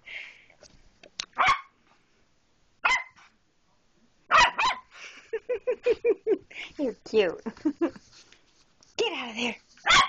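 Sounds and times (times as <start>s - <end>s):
dog barking: 1.4s - 1.7s, 2.8s - 3.3s, 4.3s - 4.9s.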